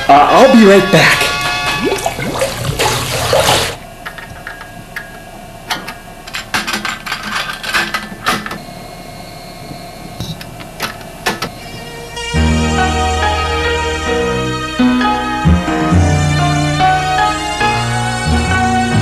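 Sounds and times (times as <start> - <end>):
low steady hum: 0.0 - 13.7.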